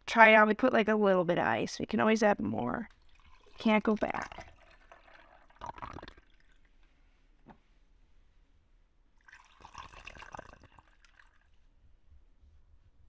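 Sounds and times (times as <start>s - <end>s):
coffee pouring over ice: 2.9s - 6.7s, 9.2s - 11.6s.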